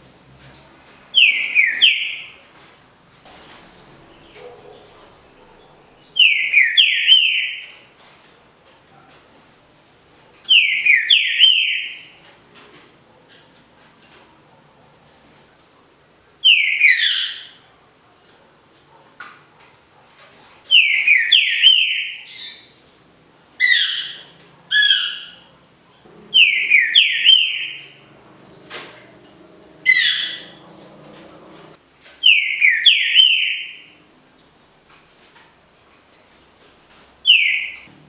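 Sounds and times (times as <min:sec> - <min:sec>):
bird whistling song: 0:01.2 - 0:02.3, 0:06.0 - 0:07.8, 0:10.5 - 0:12.1, 0:16.5 - 0:17.5, 0:20.7 - 0:22.7, 0:26.4 - 0:28.0, 0:32.2 - 0:33.9, 0:37.3 - 0:37.9.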